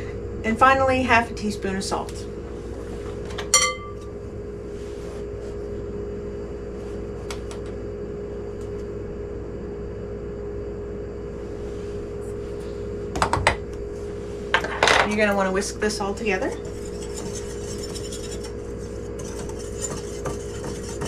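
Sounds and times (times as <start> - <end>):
steady appliance hum: 0.0 - 21.0
metal spoon clinking bowl: 3.6 - 4.0.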